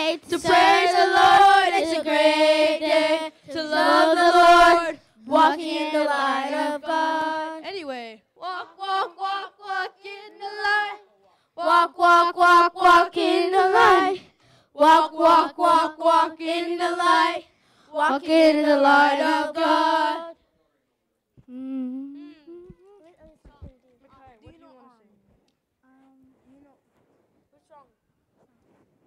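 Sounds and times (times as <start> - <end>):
single voice singing: 0.0 - 7.6
children and women singing: 0.0 - 20.4.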